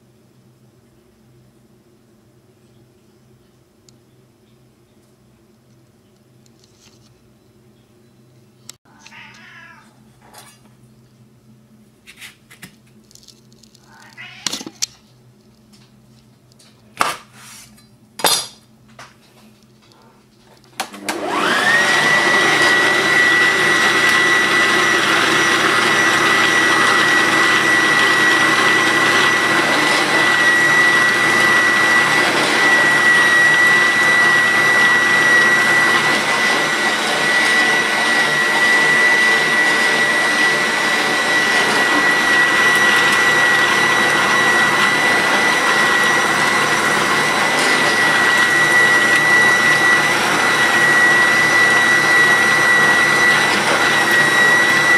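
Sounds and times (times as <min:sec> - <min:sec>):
food processor motor whirring: 0:20.8 - 0:54.9.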